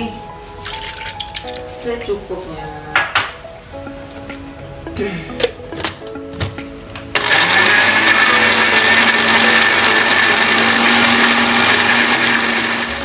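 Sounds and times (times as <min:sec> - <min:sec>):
blender motor running: 0:07.2 - 0:13.0.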